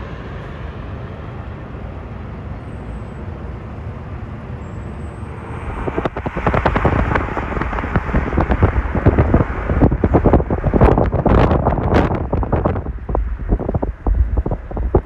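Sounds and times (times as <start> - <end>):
jet engines rumbling: 0.0 - 15.0
wind buffeting microphone: 5.2 - 15.0.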